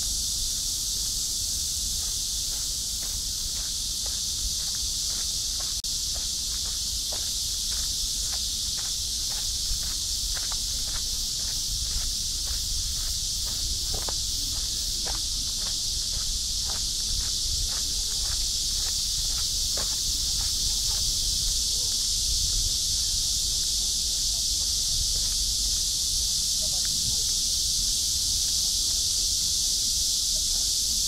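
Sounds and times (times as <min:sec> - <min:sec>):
high-pitched insect chorus: 0:00.0 - 0:31.0
footsteps on path: 0:01.9 - 0:21.6.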